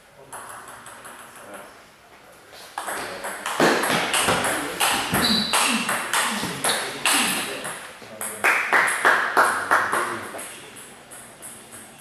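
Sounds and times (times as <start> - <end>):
ping pong ball on bat and table: 0.3 - 1.5, 2.8 - 12.0
short high squeak: 5.2 - 5.7.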